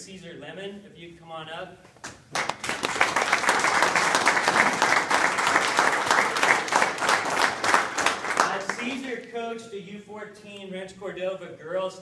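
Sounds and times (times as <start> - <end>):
people applauding: 2.3 - 9.2.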